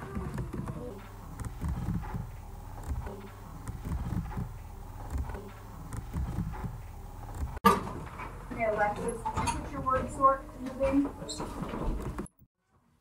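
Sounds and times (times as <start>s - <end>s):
low garbled pulses: 0.0s - 7.6s.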